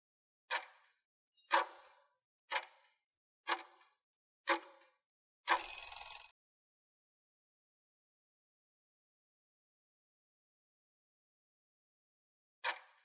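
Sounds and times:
clock ticks: 3.5 - 3.9.

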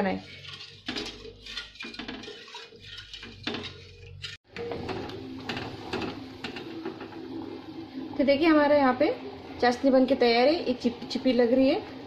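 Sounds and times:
wooden spatula scraping steel pan: 0.0 - 6.6.

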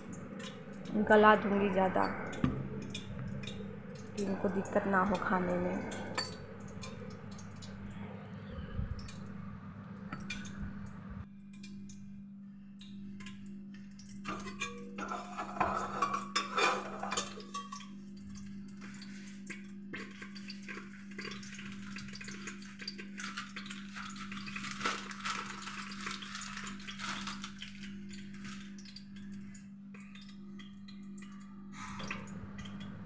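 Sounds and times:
low hum: 0.0 - 18.7, 28.8 - 33.0
metal ladle scraping a pot: 14.3 - 17.4.

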